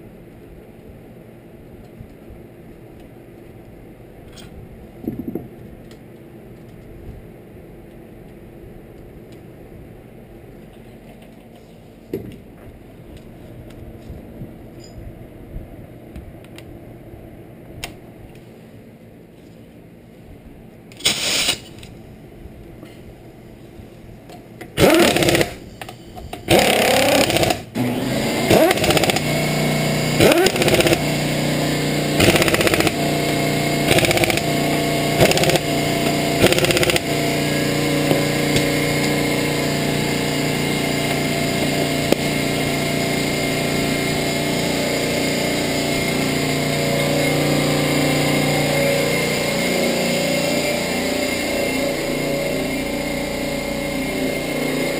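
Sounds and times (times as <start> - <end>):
steady machine hum: 0.0 - 54.9
impact wrench bursts: 21.0 - 21.8, 24.8 - 25.6, 26.5 - 48.7.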